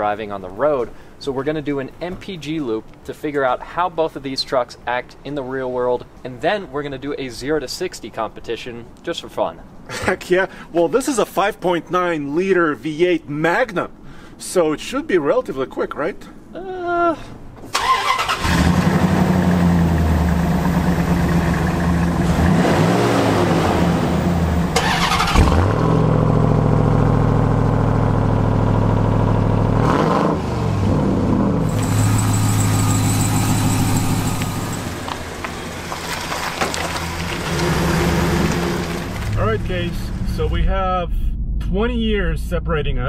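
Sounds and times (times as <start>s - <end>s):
truck engine starting and idling: 17.7s - 41.8s
heavier engine idling and revving: 18.2s - 41.7s.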